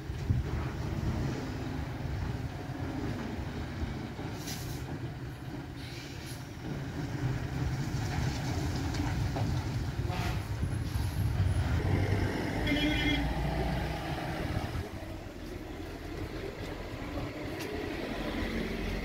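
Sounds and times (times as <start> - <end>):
diesel lorry engine rumbling: 0.0 - 19.0
brief hiss: 4.4 - 4.9, 5.8 - 6.5.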